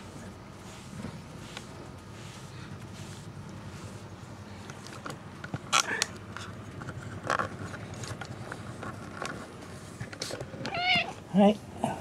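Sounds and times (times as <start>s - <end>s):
fur rustling against microphone: 0.0s - 5.3s.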